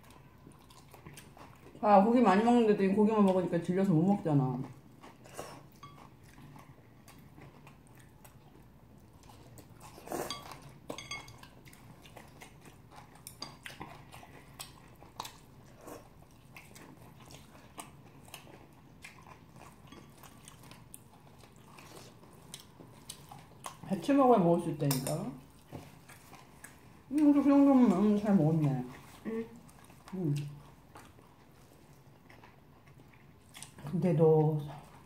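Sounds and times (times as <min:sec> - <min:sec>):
chewing and slurping noodles: 0:04.6 - 0:23.9, 0:25.4 - 0:33.9
chopsticks clicking on dishes: 0:24.8 - 0:25.3.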